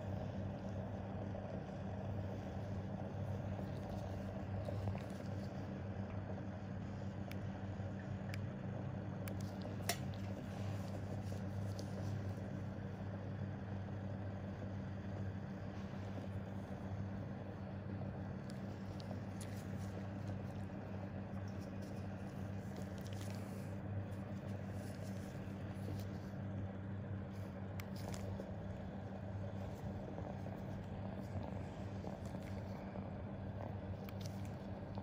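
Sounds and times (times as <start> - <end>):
background room noise: 0.0 - 35.0
low electrical hum: 0.0 - 35.0.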